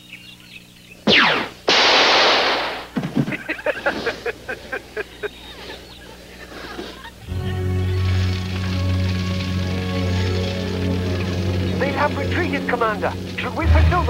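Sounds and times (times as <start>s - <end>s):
electronic blaster zaps: 1.0s - 3.0s
loud blast: 1.1s - 3.0s.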